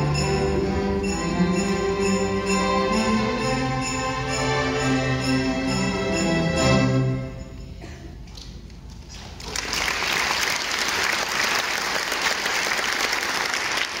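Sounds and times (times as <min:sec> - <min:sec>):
string orchestra chord: 0:00.0 - 0:07.5
audience applause: 0:09.3 - 0:14.0.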